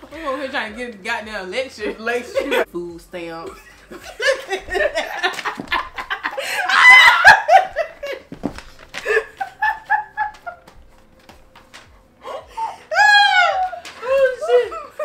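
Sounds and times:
women laughing: 1.8 - 2.7, 3.4 - 8.3, 8.9 - 10.8, 12.2 - 15.0.

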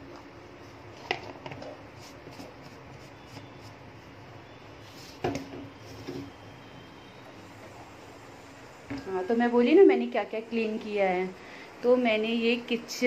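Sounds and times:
steady low hiss: 3.7 - 13.0.

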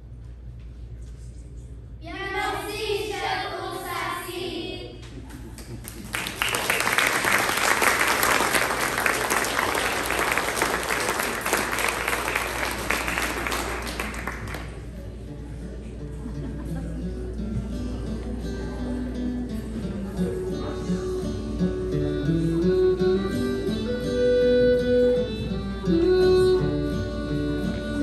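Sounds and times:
audience applauding: 5.6 - 14.8.

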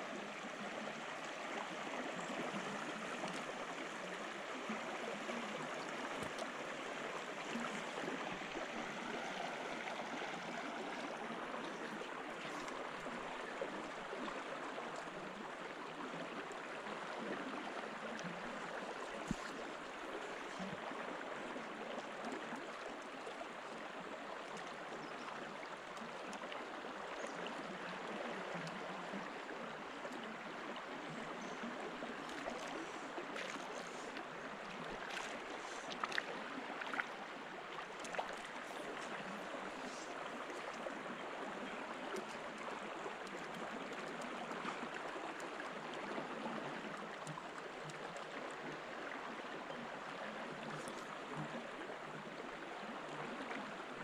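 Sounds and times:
river water rushing: 0.0 - 16.1, 29.3 - 48.7.

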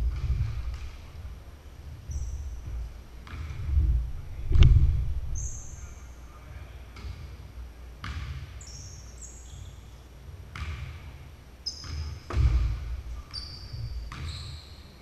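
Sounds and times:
basketball bouncing: 0.0 - 1.2, 2.1 - 4.0, 10.5 - 10.9, 11.8 - 13.0, 13.7 - 14.3
heavy low thud: 0.0 - 1.3, 3.6 - 5.4
shoes squeaking on hardwood floor: 11.6 - 14.9.

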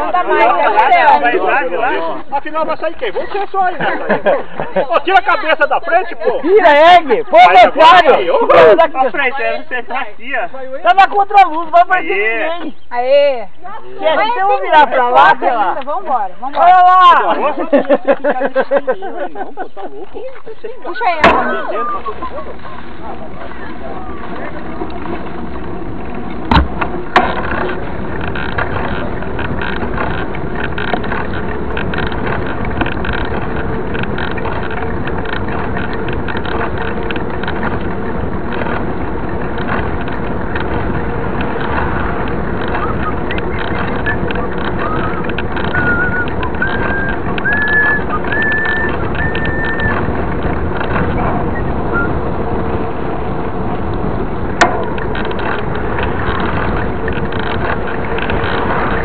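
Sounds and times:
bike tyre roar on asphalt: 20.8 - 59.0
wind on microphone: 20.8 - 59.0
rising whistle-like tones: 42.7 - 50.0, 51.4 - 52.2
camera mount rattling: 54.6 - 59.0.

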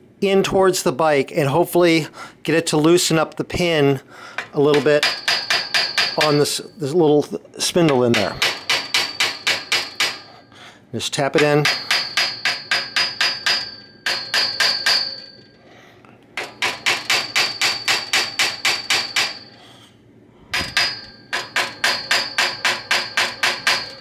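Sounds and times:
hammer tapping metal: 4.3 - 6.8, 7.8 - 10.5, 11.2 - 15.6, 16.4 - 19.9, 20.5 - 24.0.

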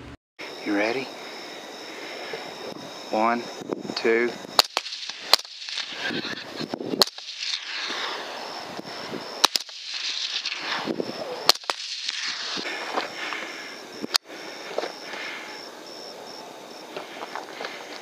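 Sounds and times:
suppressed rifle shots: 4.6 - 8.1, 9.4 - 10.8, 11.4 - 12.6.

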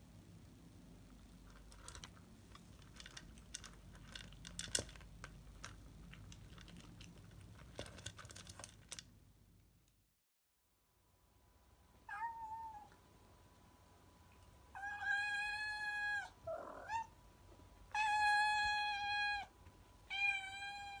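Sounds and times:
cat meowing: 12.1 - 12.9, 14.8 - 17.1, 20.1 - 21.0.

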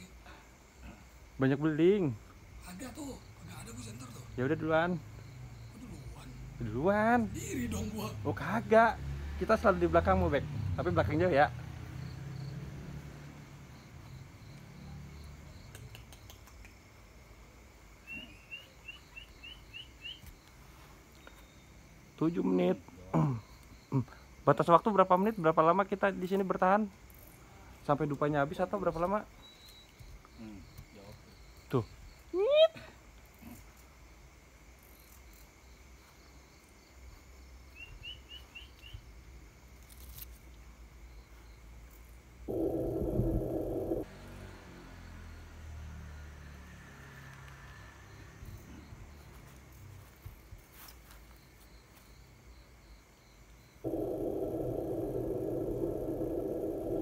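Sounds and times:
insects droning: 0.0 - 57.0
quick insect chirps: 0.0 - 57.0
faint repeating chirp: 29.4 - 30.2, 42.5 - 44.1, 53.7 - 57.0
small animal chirping: 42.5 - 44.1, 53.8 - 57.0.

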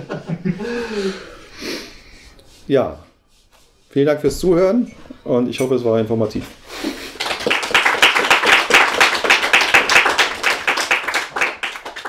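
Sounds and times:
audience applauding: 7.1 - 12.0.

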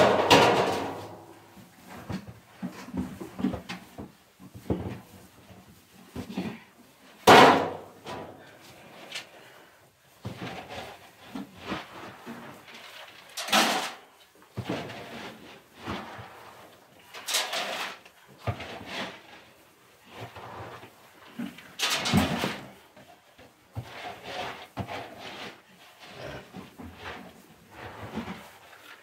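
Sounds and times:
barrel banging and thumping: 0.0 - 1.4, 7.2 - 8.4.

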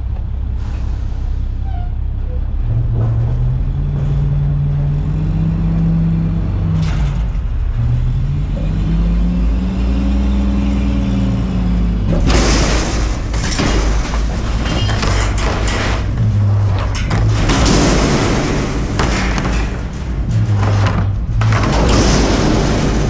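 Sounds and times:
garbage truck engine revving: 0.0 - 23.0
trash crashing into hopper: 11.7 - 23.0.

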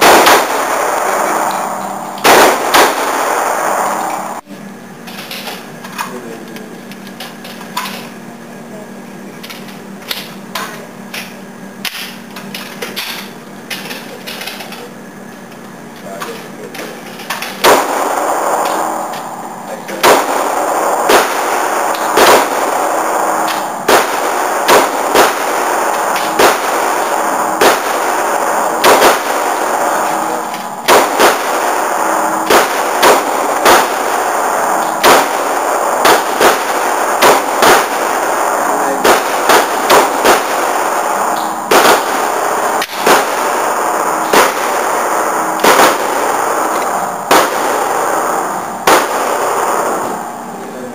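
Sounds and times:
pistol shots: 0.0 - 4.4, 17.3 - 50.6
steady background noise: 0.0 - 50.9.

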